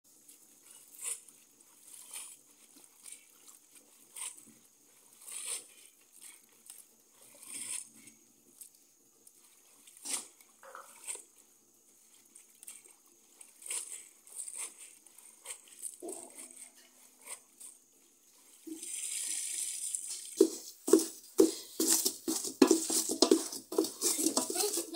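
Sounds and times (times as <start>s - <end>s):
water pouring: 18.4s - 20.9s.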